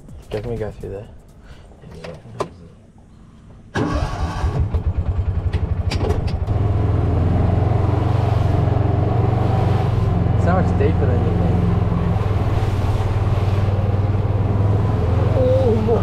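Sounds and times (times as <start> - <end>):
engine starting and idling: 3.7 - 6.7.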